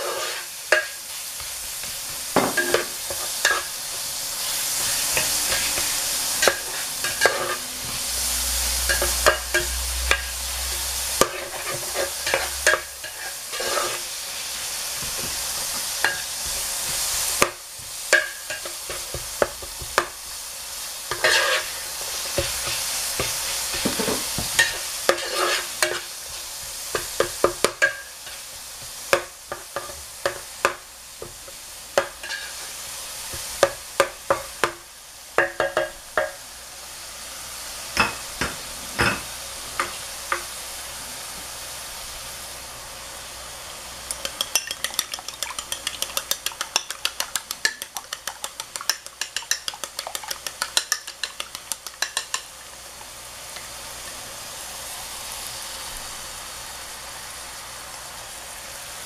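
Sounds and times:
meat and vegetables sizzling: 0.0 - 59.0
stirring utensil clicking on pan: 44.1 - 53.7.

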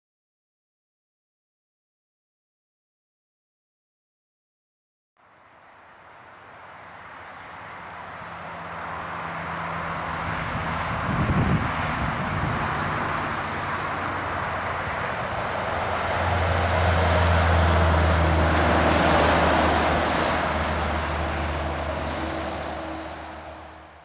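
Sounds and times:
trucks driving past: 5.2 - 24.0.

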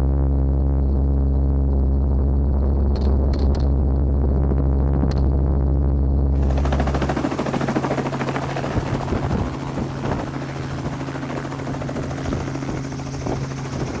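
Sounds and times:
helicopter engine drone: 6.3 - 14.0
helicopter rotor chop: 6.4 - 14.0.

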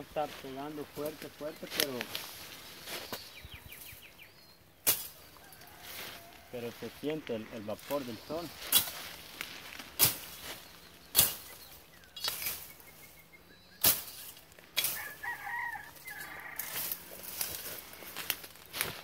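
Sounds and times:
leaves and stems rustling: 0.0 - 19.0
machete chopping brush: 4.8 - 5.3, 8.5 - 13.0, 13.8 - 15.4
rooster crowing: 5.3 - 6.9, 14.8 - 17.3.

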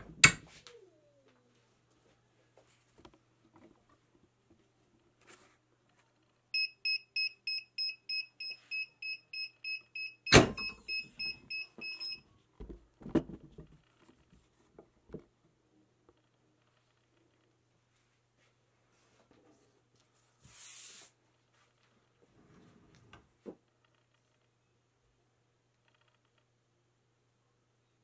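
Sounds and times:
heat press clunk: 10.3 - 10.8.

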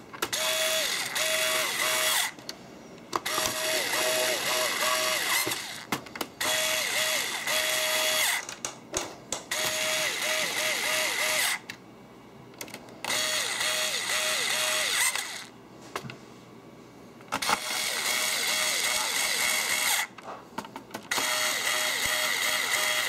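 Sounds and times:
cordless screwdriver motor whirring: 0.3 - 2.4, 3.2 - 8.4, 9.5 - 11.6, 13.1 - 15.5, 17.4 - 20.1, 21.1 - 23.0.

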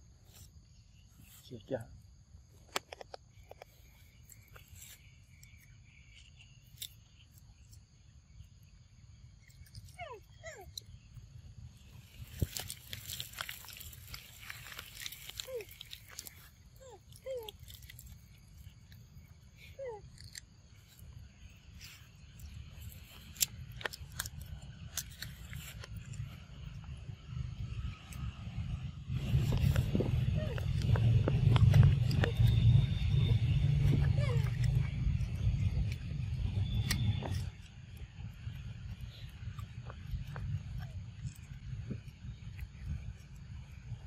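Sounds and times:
insects droning: 0.0 - 44.0
monkey crunching fruit: 12.0 - 26.4, 29.2 - 43.5.

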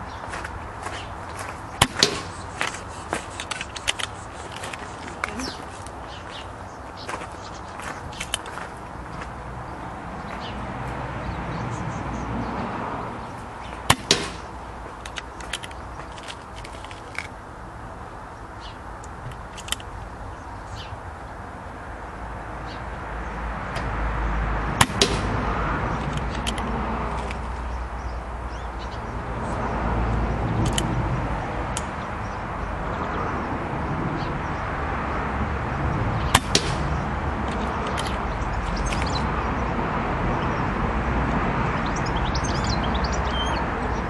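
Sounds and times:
outdoor rumble: 0.0 - 44.0
air pistol firing: 1.8 - 2.5, 13.9 - 14.5, 24.8 - 25.4, 36.3 - 36.9
pellet striking click: 13.9 - 14.5.

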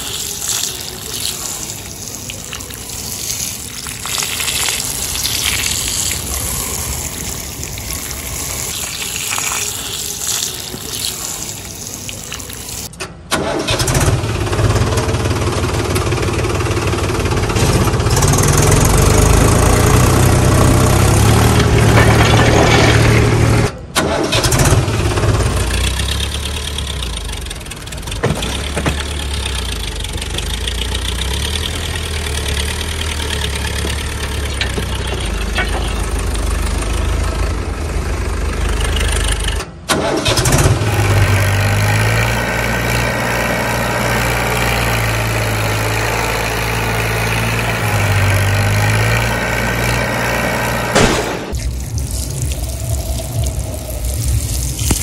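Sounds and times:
tractor engine idling: 0.0 - 55.0.

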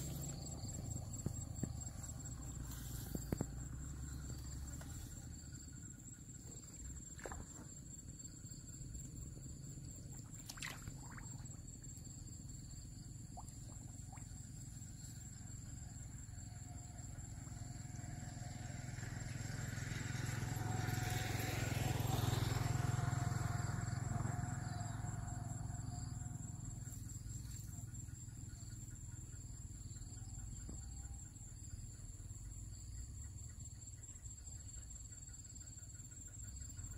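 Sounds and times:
insects droning: 0.0 - 36.9
vehicle passing by: 17.8 - 26.0.

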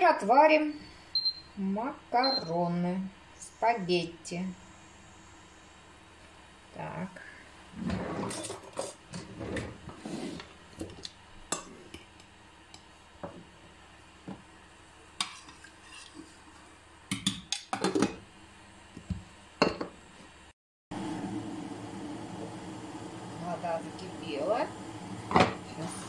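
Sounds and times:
pot of water hissing: 3.3 - 8.5, 21.0 - 26.0.

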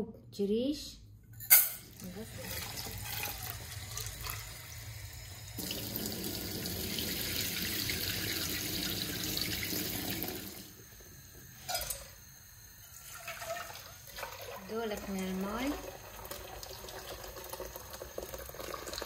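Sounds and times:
water spilling into steel sink: 1.9 - 4.8, 5.6 - 10.6
tap water running into bowl: 1.9 - 10.6, 13.0 - 19.0.

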